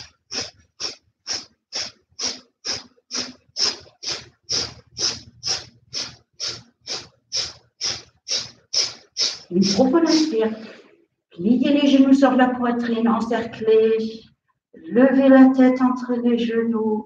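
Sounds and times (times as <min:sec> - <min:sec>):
rapid forceful nose exhalations: 0:00.0 - 0:11.0.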